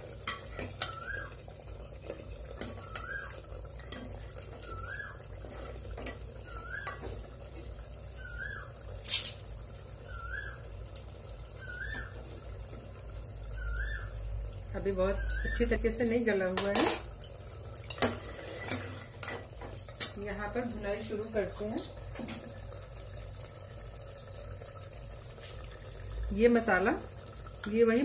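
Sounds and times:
metal ladle scraping a pot: 0:05.3 - 0:07.3, 0:17.9 - 0:19.4.

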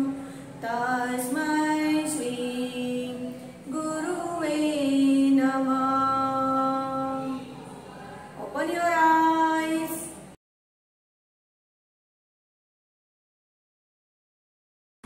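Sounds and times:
woman singing a prayer chant: 0:00.0 - 0:10.2.

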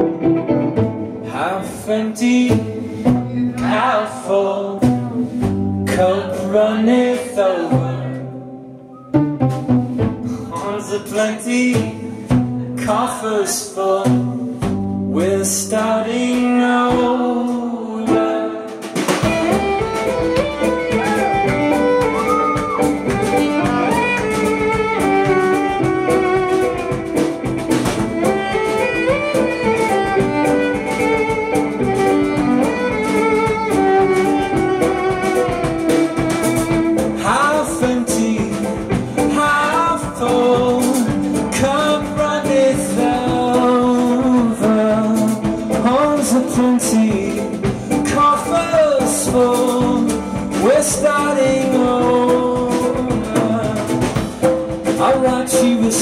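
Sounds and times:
bowed violin melody: 0:00.0 - 0:02.0, 0:06.0 - 0:12.8, 0:19.2 - 0:40.7
plucked violin: 0:00.0 - 0:13.4, 0:18.0 - 0:56.0
man singing: 0:01.2 - 0:08.5, 0:10.4 - 0:19.6, 0:37.0 - 0:56.0.

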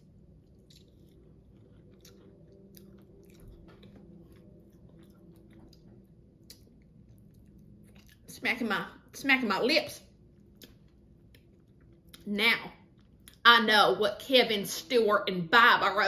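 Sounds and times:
person chewing and lip-smacking: 0:00.0 - 0:08.3, 0:10.4 - 0:13.4.

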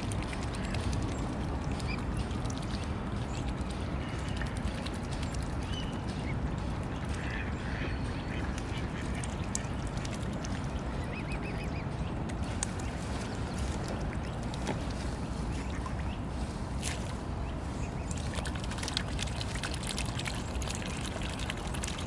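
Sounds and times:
small clicks from feeding birds: 0:00.0 - 0:15.1, 0:18.0 - 0:22.0
low background noise: 0:00.0 - 0:22.0
ducks quacking: 0:07.0 - 0:10.0.

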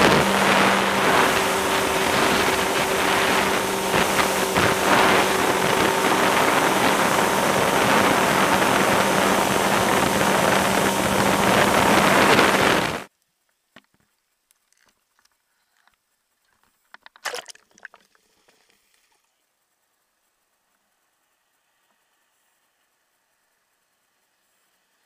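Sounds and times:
motorboat engine hum: 0:00.0 - 0:13.1
water rushing along hull: 0:00.0 - 0:13.1.

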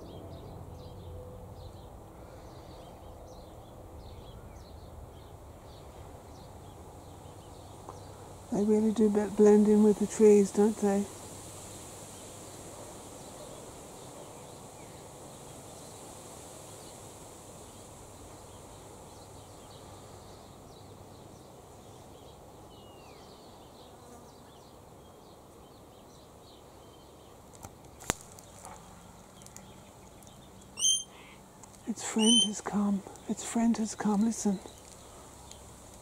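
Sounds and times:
faint bird chirps: 0:30.7 - 0:35.2
insect buzz: 0:31.9 - 0:32.6.

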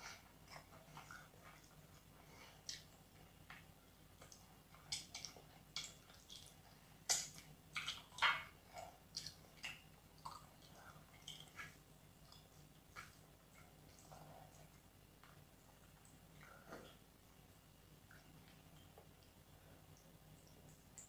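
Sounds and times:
wet chewing and lip-smacking: 0:00.0 - 0:03.6, 0:04.2 - 0:17.0.

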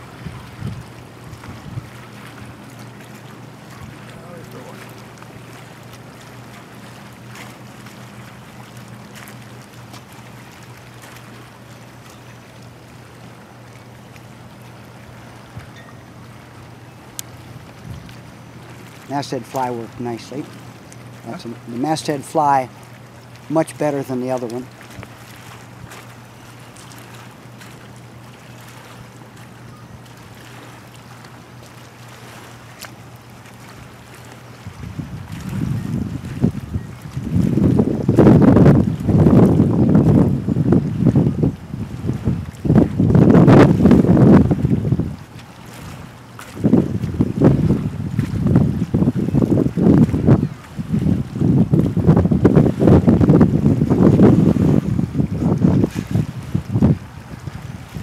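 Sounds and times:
water lapping: 0:00.0 - 0:58.0
wind: 0:00.0 - 0:58.0
faint clicks: 0:17.1 - 0:17.3
light ticks: 0:17.1 - 0:17.3.

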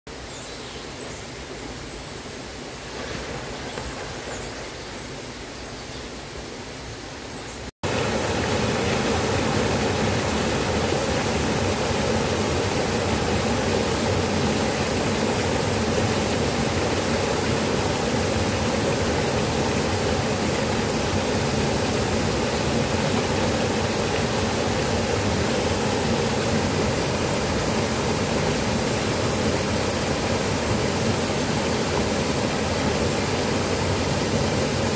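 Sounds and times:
waterfall rushing: 0:07.8 - 0:34.9.

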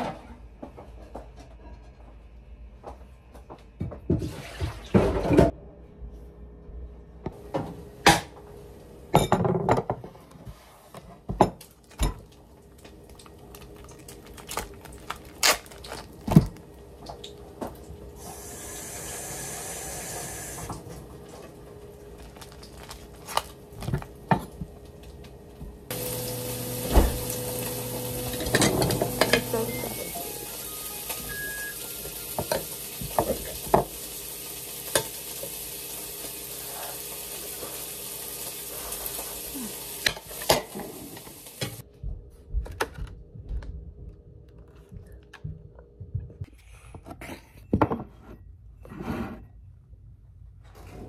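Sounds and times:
tap running: 0:22.2 - 0:31.4.

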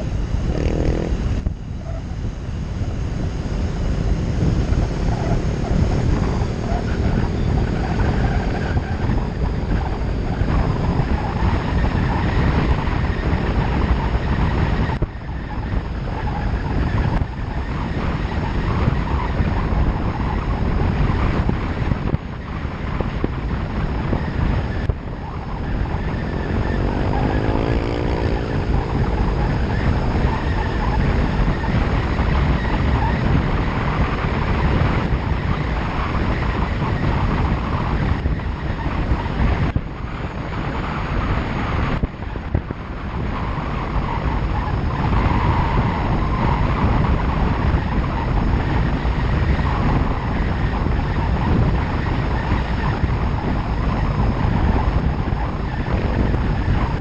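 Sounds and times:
short rising whine: 0:00.0 - 0:10.6
vehicle engine and tyre noise: 0:00.0 - 0:57.0
wind rushing over microphone: 0:00.0 - 0:57.0.

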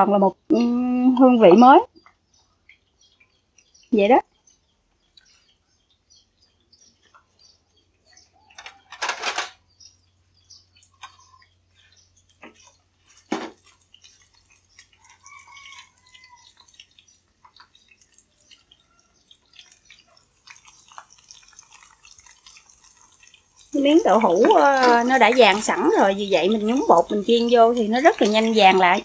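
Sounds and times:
utensils clattering: 0:08.6 - 0:09.6, 0:23.8 - 0:29.0
food frying in hot oil: 0:10.4 - 0:29.0.

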